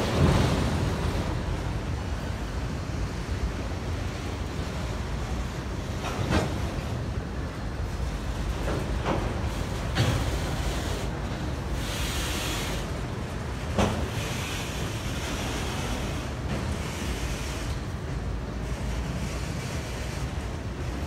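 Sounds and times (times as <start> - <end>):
train wheels rumbling on rail: 0.0 - 21.0
sharp rail clack: 8.6 - 11.1, 13.6 - 17.8.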